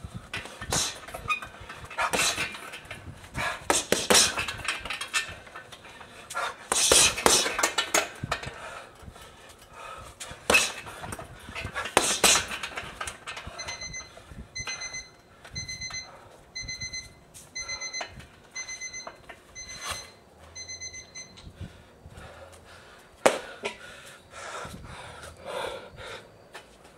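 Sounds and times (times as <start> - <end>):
person panting heavily: 0.0 - 4.6, 5.4 - 7.6, 8.4 - 12.5, 21.6 - 26.4
short electronic beeps: 13.6 - 21.4.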